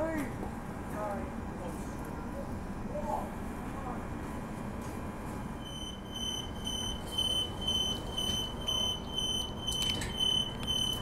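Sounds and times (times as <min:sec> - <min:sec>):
train carriage hum: 0:00.0 - 0:11.0
electronic warning beeper: 0:05.6 - 0:11.0.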